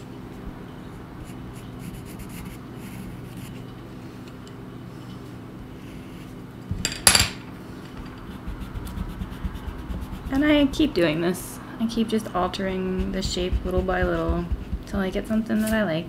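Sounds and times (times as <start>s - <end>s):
pencil sketching on paper: 8.2s - 10.9s, 12.4s - 15.2s
rough rubbing noise: 12.5s - 14.9s.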